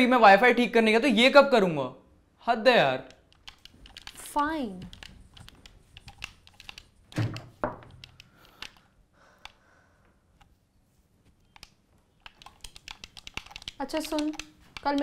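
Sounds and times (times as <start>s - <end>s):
controller buttons clicking: 3.0s - 9.6s, 11.3s - 15.0s.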